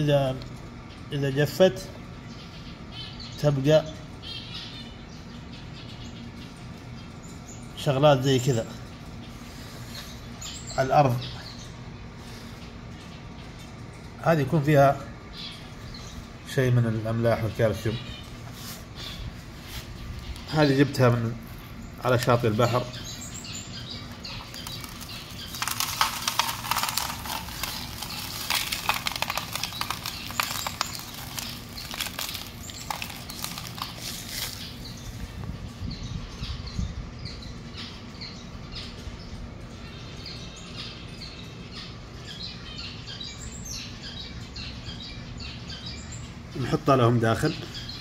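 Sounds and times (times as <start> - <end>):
small birds chirping: 0.0 - 48.0
steady low hum: 0.0 - 48.0
rustling and clattering: 24.1 - 34.8.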